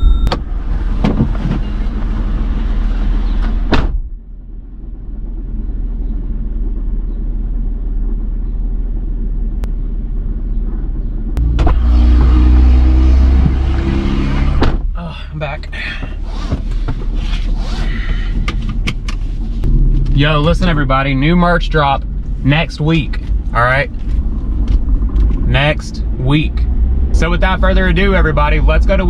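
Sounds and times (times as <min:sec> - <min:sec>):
street rumble: 0:00.0 - 0:29.0
car door shutting: 0:03.4 - 0:04.0, 0:11.5 - 0:12.4, 0:13.4 - 0:14.9
car idling: 0:04.1 - 0:29.0.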